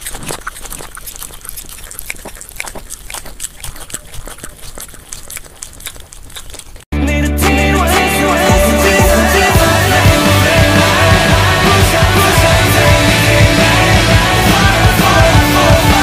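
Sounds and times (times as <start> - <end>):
puppy chewing wet food: 0.0 - 6.9
music: 6.9 - 16.0.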